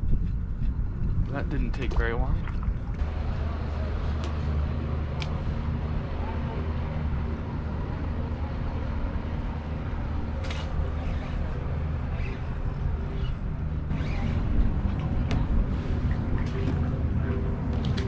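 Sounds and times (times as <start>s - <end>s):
wind: 0.0s - 18.0s
moving water: 1.6s - 3.3s.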